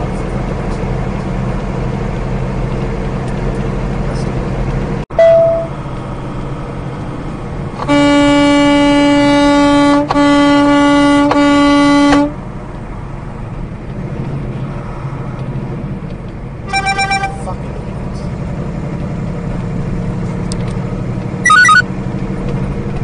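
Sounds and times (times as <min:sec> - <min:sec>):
road and engine noise: 0:00.0 - 0:23.0
truck horn blasts: 0:05.1 - 0:05.8, 0:07.8 - 0:12.4, 0:16.6 - 0:17.5.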